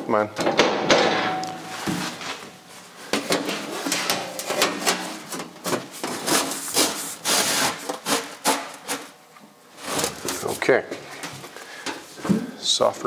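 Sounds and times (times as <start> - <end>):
sheet metal scraping and clattering: 3.3 - 8.7.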